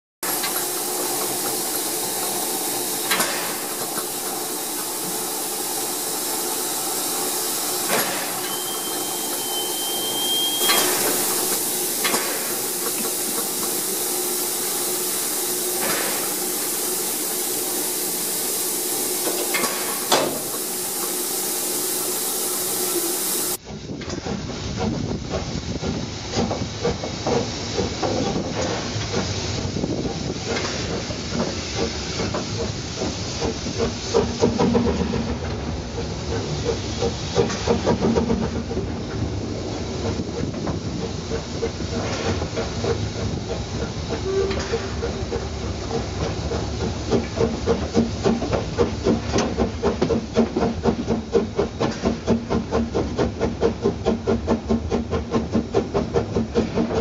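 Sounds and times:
steam locomotive hissing: 0.2s - 57.0s
thin high tone: 4.8s - 11.9s.

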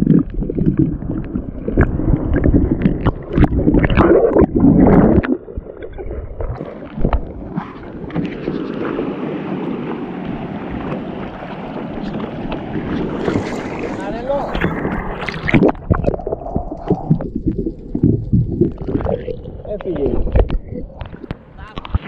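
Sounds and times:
choppy water: 0.0s - 22.0s
water sloshing and gurgling: 0.0s - 22.0s
sharp water splashes: 6.3s - 22.0s.

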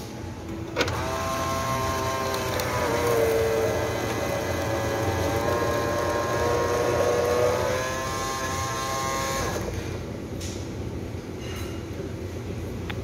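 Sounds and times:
vending machine motor whine: 0.4s - 10.0s.

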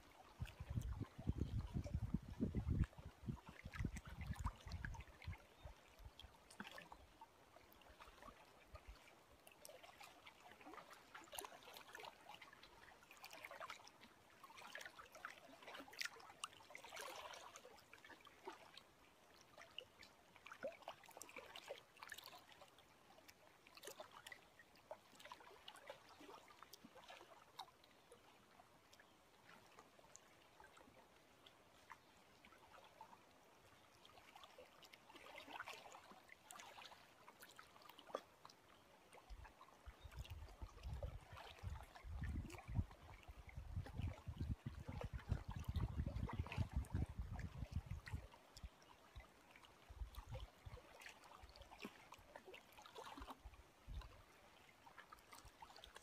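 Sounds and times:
lake ripples lapping: 0.0s - 56.0s.

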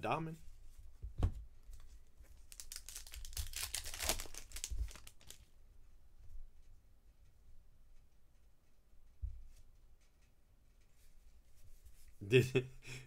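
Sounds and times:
cards crinkling and rustling: 1.7s - 5.5s.

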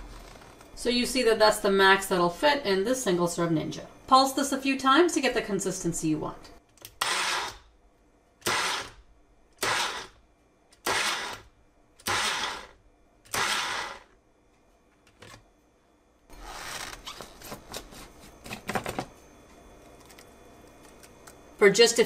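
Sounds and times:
blender motor bursts: 7.0s - 7.6s, 8.4s - 9.0s, 9.6s - 10.2s, 10.8s - 14.1s.

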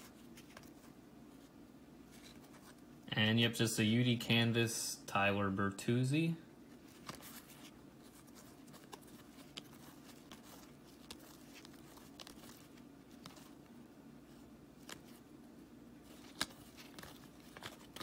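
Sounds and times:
cards being dealt by hand: 0.0s - 1.5s, 2.1s - 2.9s, 6.7s - 15.2s, 16.0s - 18.0s
low room hum: 0.0s - 18.0s.

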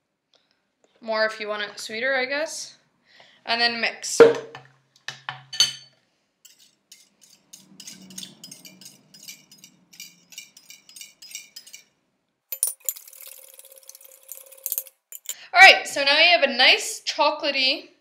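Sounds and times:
spoon scraping bowl: 6.4s - 11.9s, 12.6s - 15.4s
metal spoon clinking in glass bowl: 6.5s - 11.9s, 12.5s - 15.4s.

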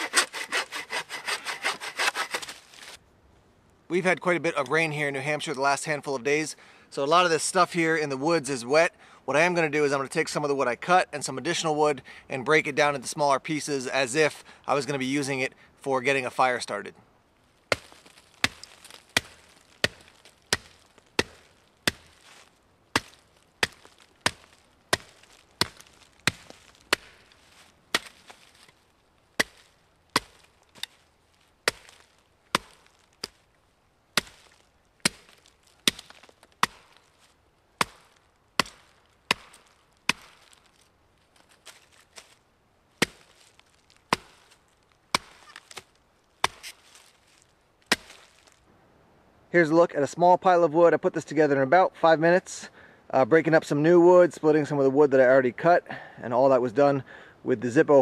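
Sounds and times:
hatchet chopping sticks: 0.0s - 2.6s.

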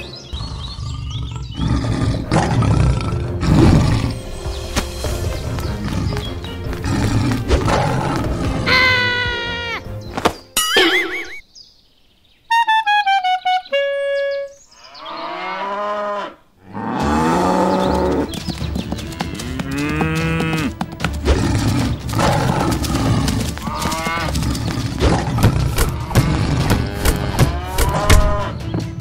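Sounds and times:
cartoon falling tones effect: 10.6s - 11.4s
cattle mooing: 19.4s - 20.8s, 21.5s - 28.5s.

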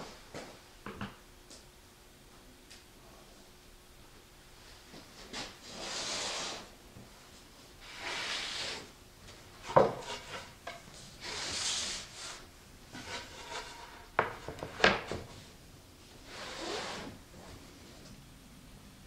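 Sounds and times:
plywood sliding on workbench: 9.6s - 12.0s, 13.0s - 15.3s.

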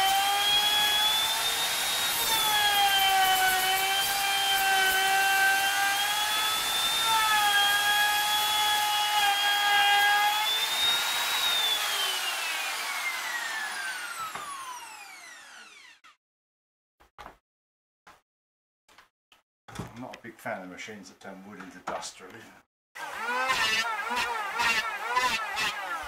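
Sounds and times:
electric router whining: 0.0s - 16.2s, 23.0s - 26.0s
router cutting wood: 0.0s - 16.2s, 23.0s - 26.0s.

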